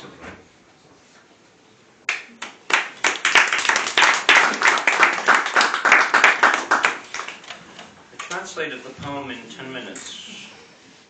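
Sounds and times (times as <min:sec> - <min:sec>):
audience applause: 0:02.1 - 0:07.5.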